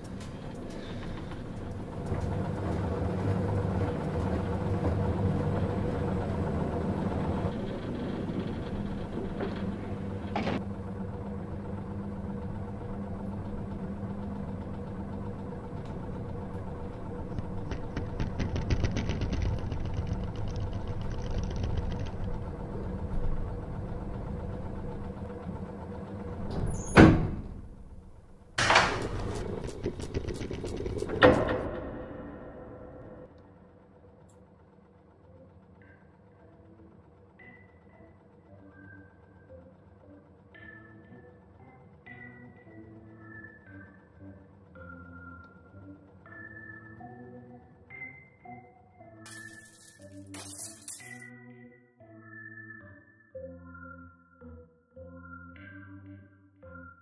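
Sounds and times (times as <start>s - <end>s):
elevator car clunk: 0.0s - 33.4s
elevator machinery humming: 0.0s - 48.5s
fast fine clicks: 17.3s - 22.5s.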